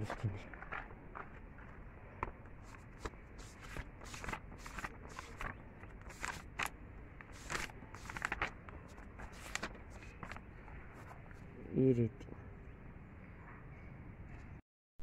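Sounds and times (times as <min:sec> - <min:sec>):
notebook pages turning: 0:00.1 - 0:11.4.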